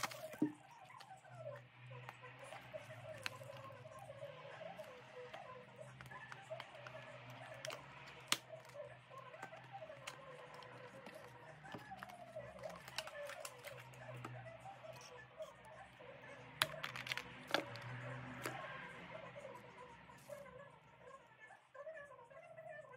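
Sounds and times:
cardboard box being opened: 0.0s - 0.5s
plastic jar clicking: 16.6s - 18.6s.

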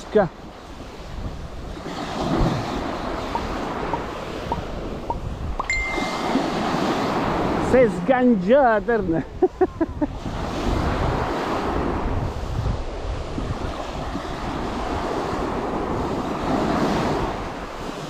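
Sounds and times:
small waves lapping: 0.0s - 8.2s
wind buffeting microphone: 0.0s - 18.0s.

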